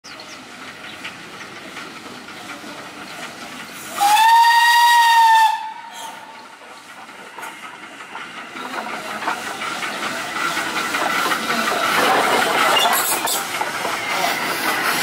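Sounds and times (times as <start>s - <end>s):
steam hissing from locomotive: 0.1s - 15.0s
steam whistle blast: 4.0s - 6.2s.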